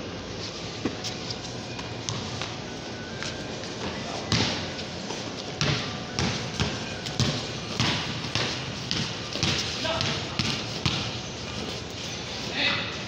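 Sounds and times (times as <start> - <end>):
ball bouncing on concrete: 1.8 - 2.6, 4.3 - 4.7, 5.6 - 11.2.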